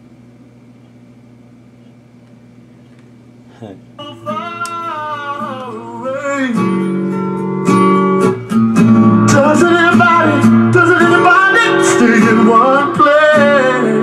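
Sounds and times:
person singing over guitar: 4.0 - 6.9, 9.2 - 14.0.

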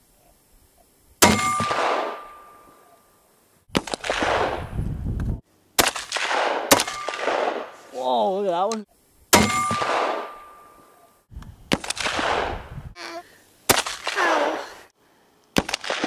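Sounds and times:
rifle shots: 1.2 - 2.4, 3.7 - 4.7, 5.8 - 7.8, 9.3 - 10.5, 11.7 - 12.6, 15.6 - 16.0.

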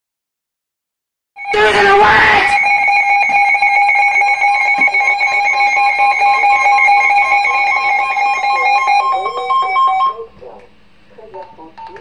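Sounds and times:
weather radio alert tones: 1.4 - 10.3.

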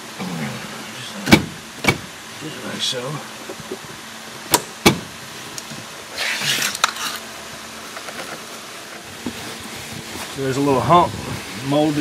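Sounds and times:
car carpet rustling and scraping: 4.8 - 12.0.

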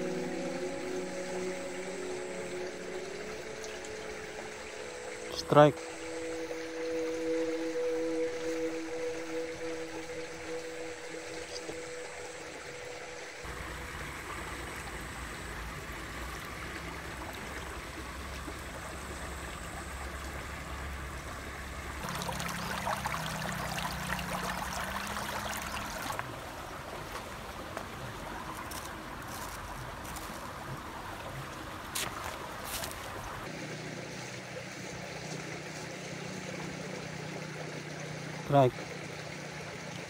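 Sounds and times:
stream babbling over stones: 10.2 - 40.0.

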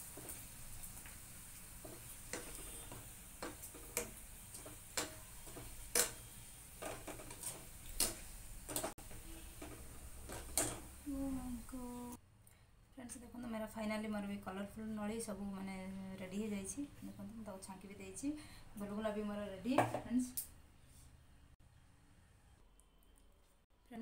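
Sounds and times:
metal spoon clinking on a pan: 3.4 - 8.9, 9.6 - 10.9.

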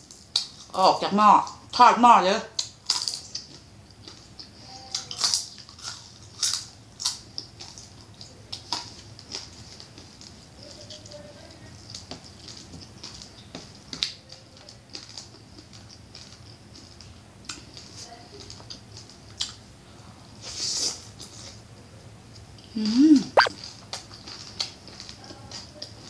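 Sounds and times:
chewing: 0.0 - 0.8, 2.6 - 19.7, 23.4 - 26.0
crunching food: 2.5 - 19.7, 23.4 - 26.0.

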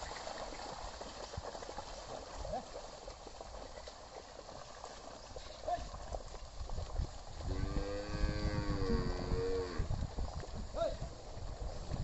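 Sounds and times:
wooden plough working through mud: 0.0 - 8.3
hooves sloshing in mud: 0.0 - 12.0
cow mooing: 7.5 - 9.9.

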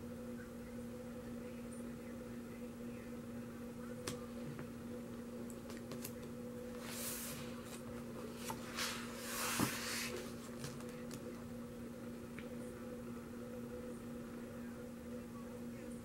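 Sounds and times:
steady low hum: 0.0 - 16.0
paper page rustling: 6.8 - 11.0.

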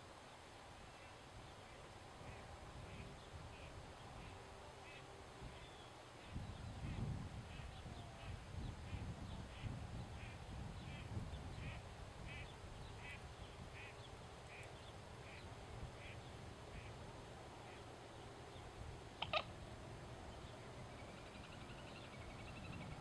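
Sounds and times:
short animal calls: 19.2 - 19.6.

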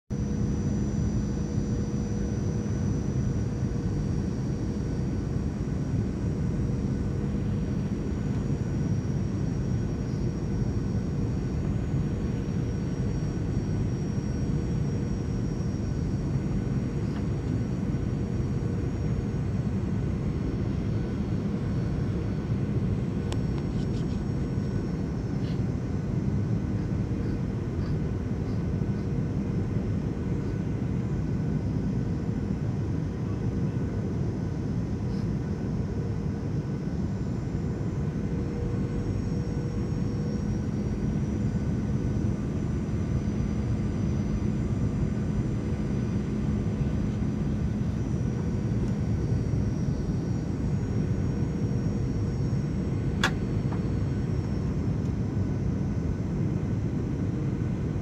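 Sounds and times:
airplane cabin roar: 0.1 - 58.0
faint high whine: 0.1 - 58.0.

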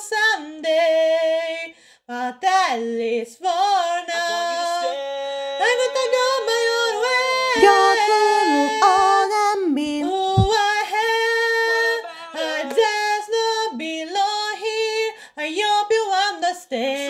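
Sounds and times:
backing voices singing: 4.0 - 13.8
female voice singing: 5.6 - 17.0.

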